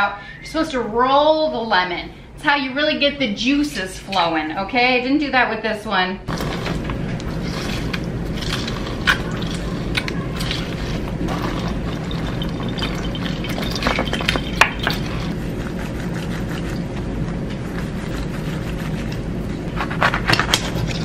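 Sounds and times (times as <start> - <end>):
steady low hum: 0.0 - 21.0
lemon juice squelching and dripping: 6.3 - 15.4.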